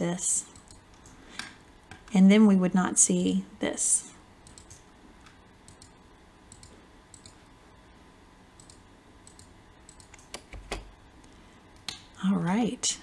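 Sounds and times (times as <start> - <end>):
computer mouse clicks: 0.5 - 2.2, 4.4 - 7.4, 8.6 - 10.9.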